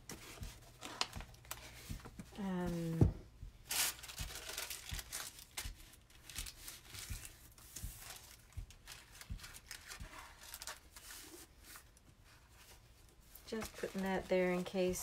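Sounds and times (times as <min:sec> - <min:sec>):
cloth and paper rustling: 0:00.0 - 0:15.0.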